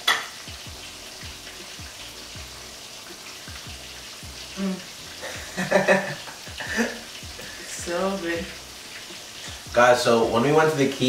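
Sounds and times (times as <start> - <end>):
fish sizzling in oil: 0.0 - 11.0
person's voice: 7.4 - 8.6, 9.6 - 11.0.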